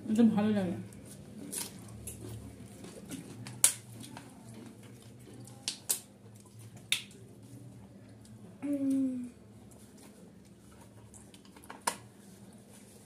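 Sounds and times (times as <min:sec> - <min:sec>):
eating clicks and smacks: 0:01.5 - 0:07.3.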